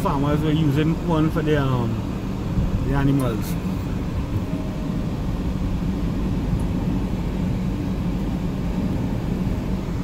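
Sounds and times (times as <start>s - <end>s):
car interior road and engine rumble: 0.0s - 10.0s.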